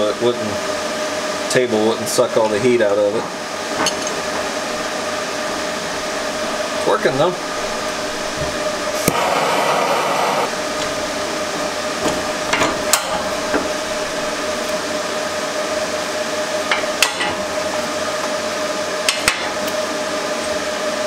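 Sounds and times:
steady background hum: 0.0s - 21.0s
torch flame hissing: 4.6s - 15.3s
metal workpiece clanking: 12.0s - 14.4s.

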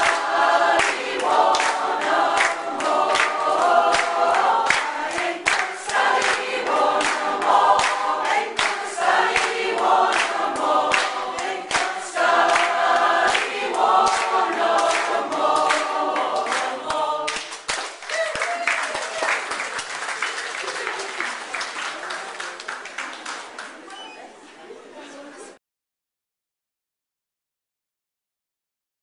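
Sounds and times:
choir singing: 0.0s - 17.6s
hands clapping along: 0.0s - 23.9s.

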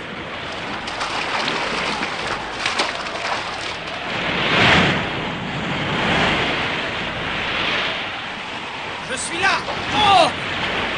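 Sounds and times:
heavy water rushing: 0.0s - 5.2s, 6.4s - 10.9s
water splashes: 0.0s - 5.2s, 7.6s - 10.9s
wave surging: 0.0s - 10.9s.

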